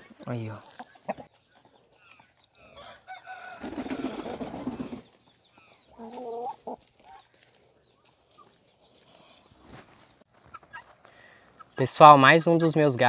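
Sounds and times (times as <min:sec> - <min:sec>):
chicken clucking: 0:00.0 - 0:09.1, 0:10.4 - 0:12.4
chickens calling: 0:00.0 - 0:13.0
harsh chicken call: 0:02.6 - 0:05.0.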